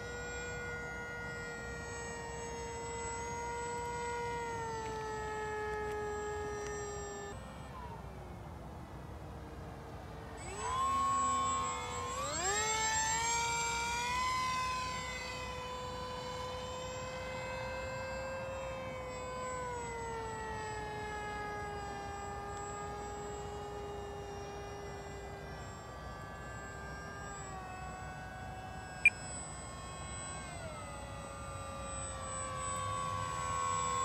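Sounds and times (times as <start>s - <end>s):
model plane motor whining: 0.0s - 34.0s.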